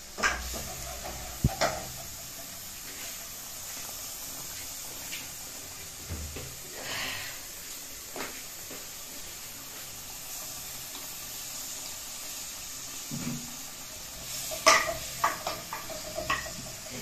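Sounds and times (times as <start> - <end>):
pot bubbling at a rolling boil: 0.0 - 17.0
spoons and pans knocking: 14.5 - 16.7.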